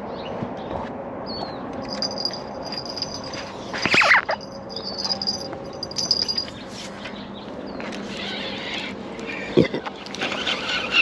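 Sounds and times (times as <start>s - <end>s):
thin high tone: 1.8s - 6.7s.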